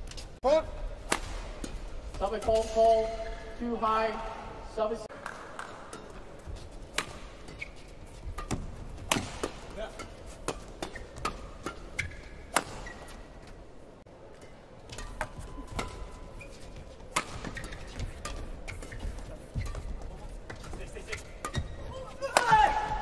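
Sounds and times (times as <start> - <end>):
rackets striking shuttlecock: 1.0 - 3.0, 5.2 - 13.0, 17.1 - 19.8
shoes squeaking on court: 6.0 - 13.7, 14.4 - 22.1.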